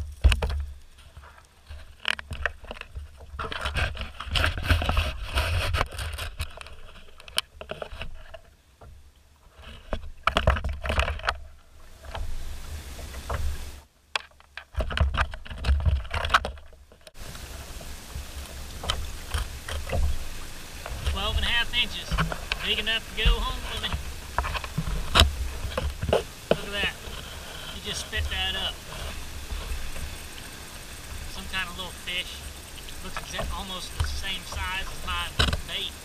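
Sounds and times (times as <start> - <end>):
clicks and knocks in plastic kayak: 0.0 - 31.0, 32.7 - 36.0
wind buffeting microphone: 17.2 - 36.0.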